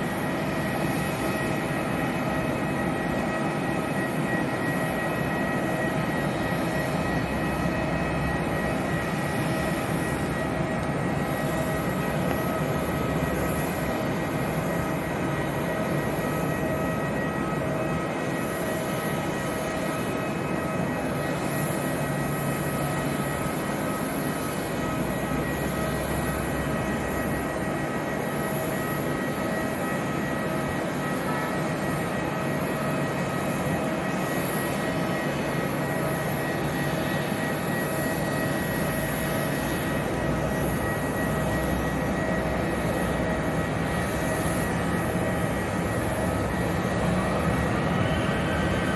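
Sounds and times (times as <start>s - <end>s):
jet engines rumbling and whining: 0.0s - 48.9s.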